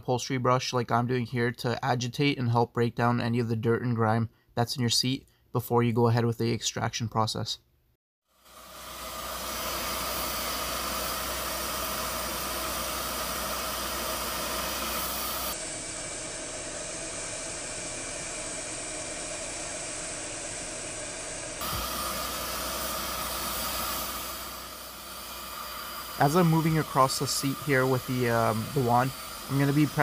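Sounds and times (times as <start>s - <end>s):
carpet extractor suction hiss: 8.4s - 30.0s.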